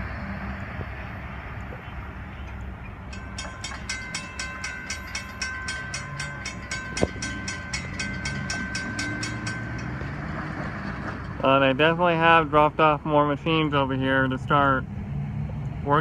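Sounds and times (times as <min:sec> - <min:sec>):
road vehicles rumbling: 0:00.0 - 0:16.0
crossing warning bell ringing: 0:02.4 - 0:14.5.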